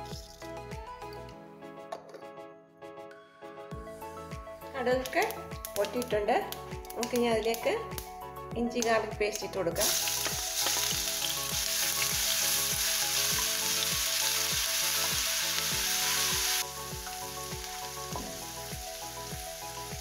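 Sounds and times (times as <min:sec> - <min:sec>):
paste sizzling in hot oil: 0:09.8 - 0:20.0.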